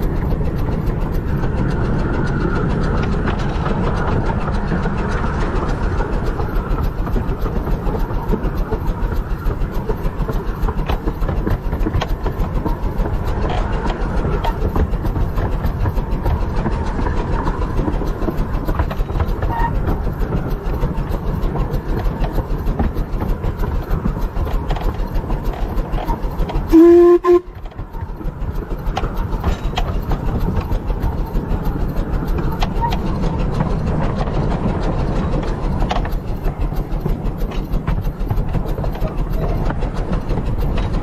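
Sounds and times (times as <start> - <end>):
clicks of wheels on track: 0.0 - 41.0
wheels rumbling on rail: 0.0 - 41.0
steam whistle blast: 26.7 - 27.5.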